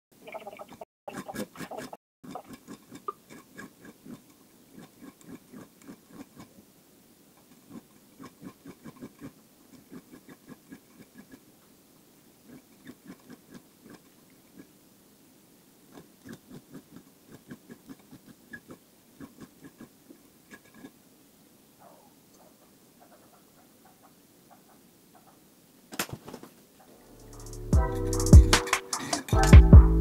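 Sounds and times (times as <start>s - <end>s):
needle file rasping on metal: 1.1s - 6.6s, 7.4s - 11.4s, 12.5s - 14.7s.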